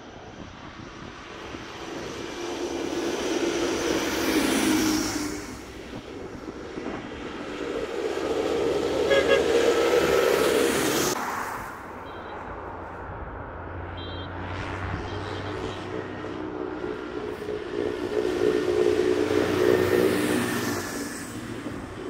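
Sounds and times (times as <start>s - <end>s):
tractor engine drone: 0.0s - 22.0s
tyres hissing on wet road: 1.7s - 11.9s, 16.7s - 22.0s.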